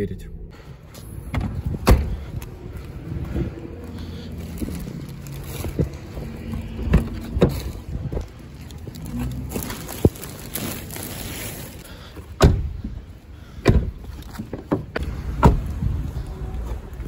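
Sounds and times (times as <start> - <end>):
low rumble: 0.0 - 11.7
plastic bag rustling: 4.3 - 12.0.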